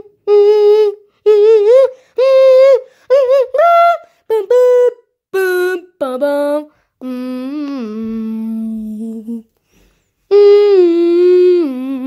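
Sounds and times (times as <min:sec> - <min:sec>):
child humming spaceship sounds: 0:10.3 - 0:12.0.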